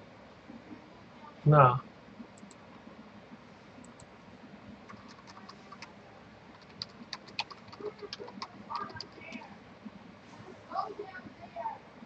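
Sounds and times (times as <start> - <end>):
faint keyboard typing: 2.2 - 2.9, 3.8 - 9.5.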